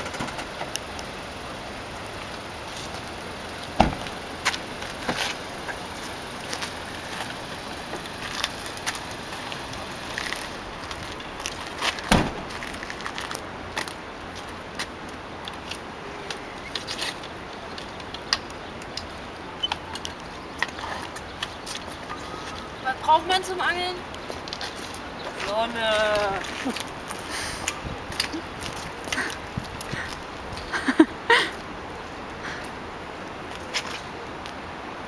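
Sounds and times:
steady outdoor hiss: 0.0s - 35.0s
car doors shutting with a thump: 3.7s - 5.2s, 12.0s - 12.6s.

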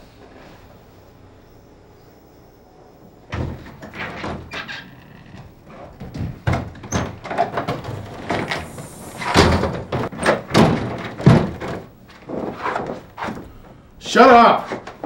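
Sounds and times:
knocks and thumps: 3.3s - 4.7s, 5.3s - 13.7s
door opening and closing: 3.3s - 13.6s.

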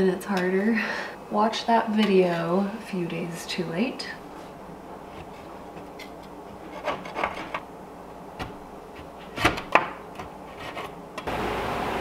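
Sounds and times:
putty knife scraping tiles: 6.0s - 7.6s, 9.0s - 11.0s.

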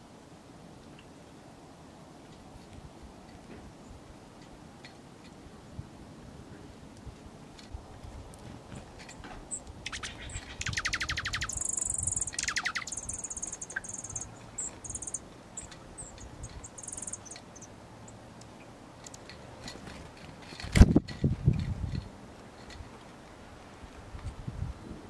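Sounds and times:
songbirds trilling and chirping: 7.6s - 20.4s.

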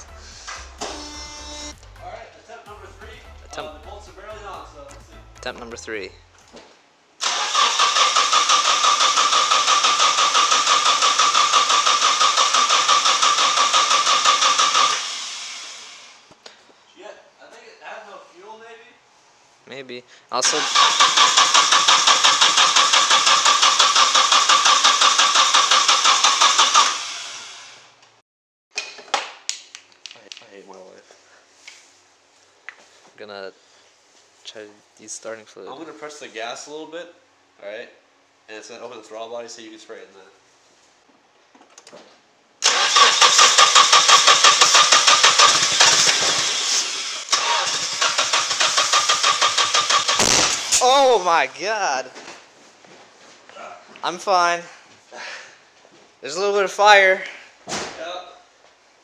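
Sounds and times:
engine cranking on starter: 7.2s - 15.9s, 20.4s - 27.8s, 42.6s - 50.8s.

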